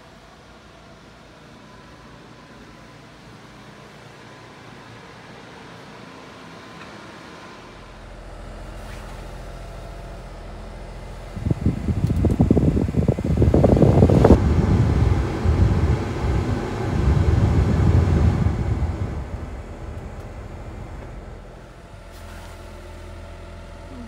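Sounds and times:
air rushing from vents: 0.0s - 24.0s
idling engine hum: 7.7s - 24.0s.

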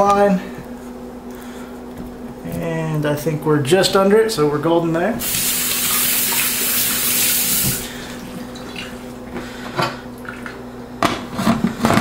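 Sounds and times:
sink tap running: 5.2s - 9.0s.

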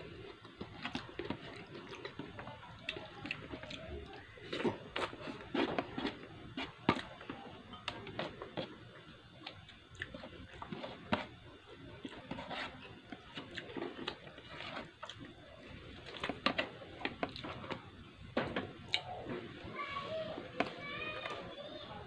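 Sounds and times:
chewing with wet mouth clicks: 9.4s - 10.6s.

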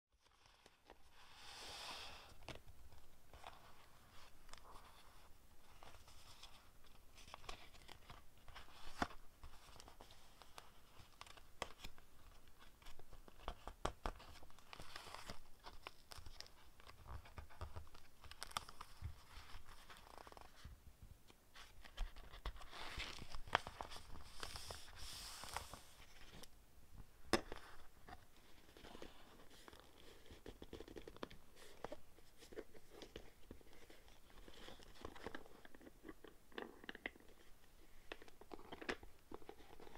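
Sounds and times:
paper pages rustling: 2.3s - 20.8s, 21.6s - 26.5s.

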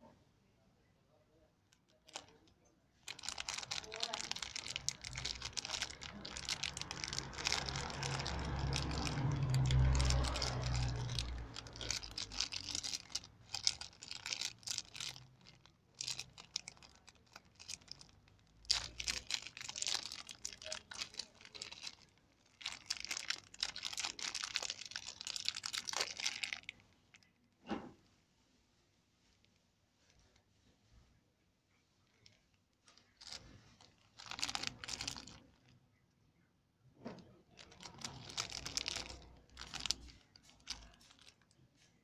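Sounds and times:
plastic bag crinkling: 1.8s - 27.3s, 32.1s - 35.8s, 37.4s - 42.0s.

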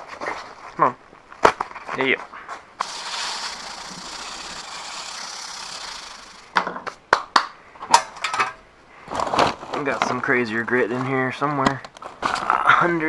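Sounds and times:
sandpaper rasping on metal: 2.8s - 6.5s.

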